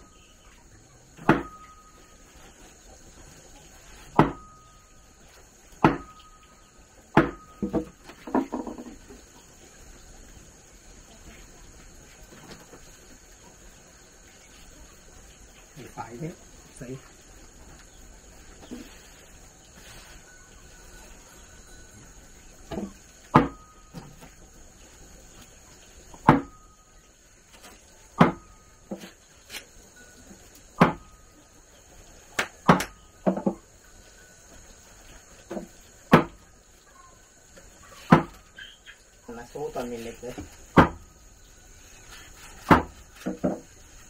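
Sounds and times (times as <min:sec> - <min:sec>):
sharp knocks with ringing tone: 0:01.2 - 0:02.2, 0:04.1 - 0:04.9, 0:05.8 - 0:09.0, 0:22.7 - 0:24.2, 0:26.2 - 0:26.8, 0:28.2 - 0:29.0, 0:30.8 - 0:31.2.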